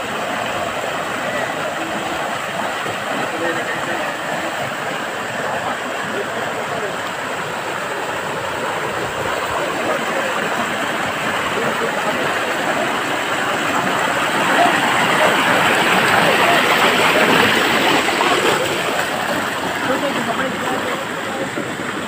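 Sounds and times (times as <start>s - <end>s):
stream rushing over stones: 0.0s - 22.0s.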